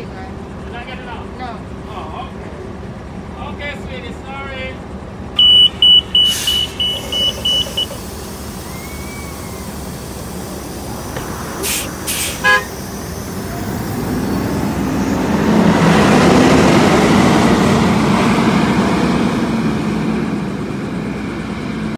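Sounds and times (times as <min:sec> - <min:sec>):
bus engine revving: 0:05.0 - 0:21.9
door warning beeps: 0:05.4 - 0:08.0
air brake hisses: 0:05.4 - 0:15.3.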